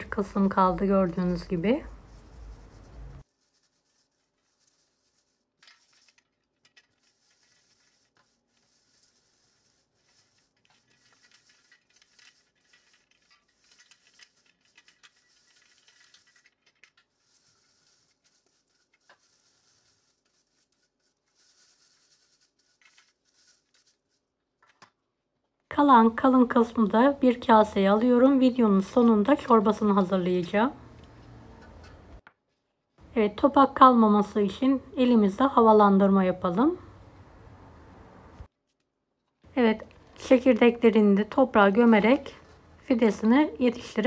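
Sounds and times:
scratchy rustling through sieve: 0:00.0 - 0:24.7.

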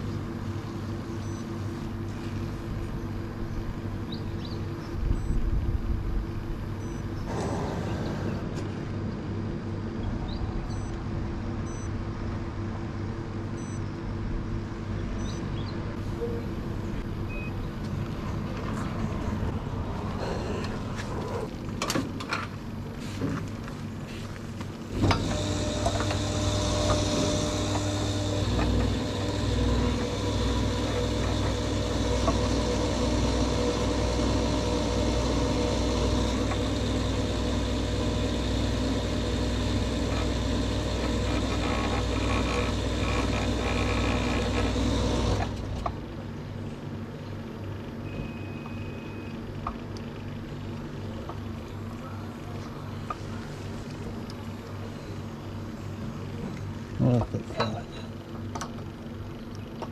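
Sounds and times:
wind and road noise: 0:01.9 - 0:12.8, 0:16.6 - 0:25.4.

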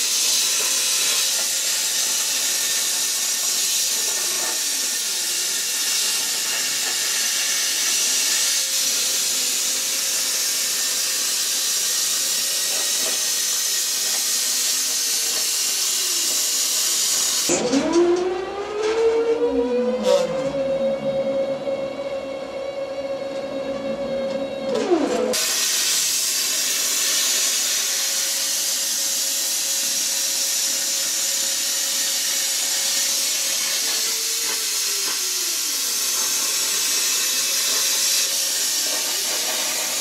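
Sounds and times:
plasma cutter hissing: 0:00.0 - 0:17.5, 0:25.3 - 0:40.0
gliding swooping musical tones: 0:17.8 - 0:25.4.

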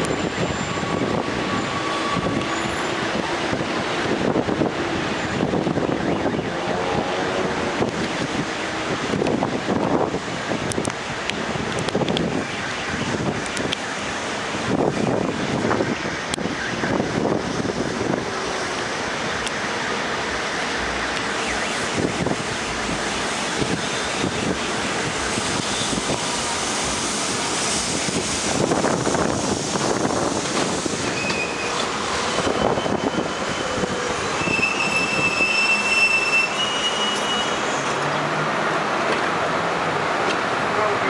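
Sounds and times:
train wheels rumbling and rattling: 0:00.0 - 0:12.4, 0:13.1 - 0:40.7
high brake squeal: 0:00.1 - 0:03.1, 0:30.9 - 0:38.1.

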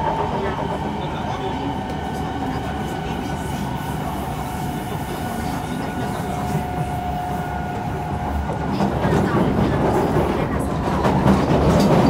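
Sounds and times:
metro train wheels rumbling: 0:00.0 - 0:12.0.

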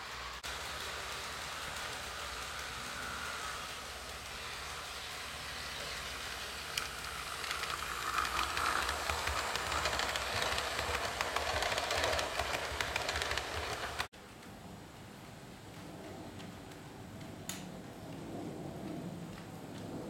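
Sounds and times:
model train running on track: 0:00.0 - 0:14.1.

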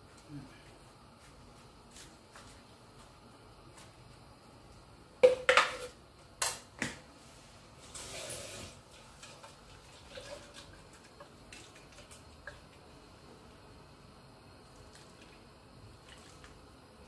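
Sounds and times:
water running from tap: 0:07.9 - 0:12.5.

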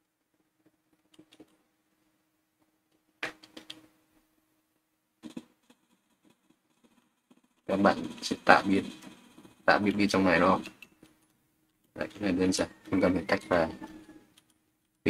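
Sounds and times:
keyboard keystrokes: 0:03.2 - 0:03.8.

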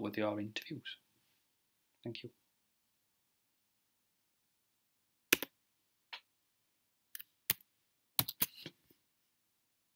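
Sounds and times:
computer mouse and key clicks: 0:08.2 - 0:08.7.

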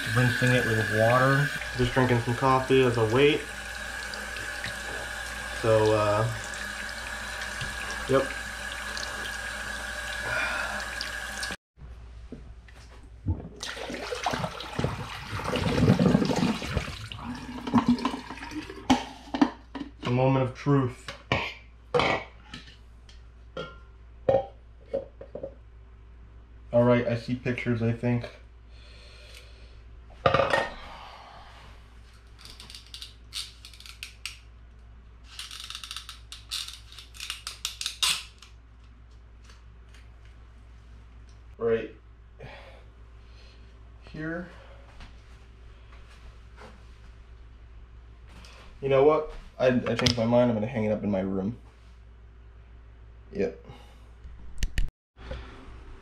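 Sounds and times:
tap water running: 0:00.0 - 0:11.6, 0:13.3 - 0:19.5
water splashing and pouring: 0:13.5 - 0:19.0.

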